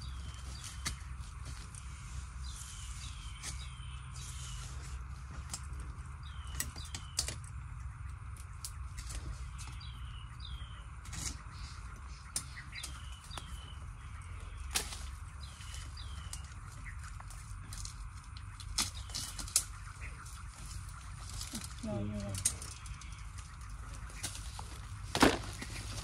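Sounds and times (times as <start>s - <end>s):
bird calling: 0.0s - 26.0s
hand tool striking earth: 25.1s - 26.0s.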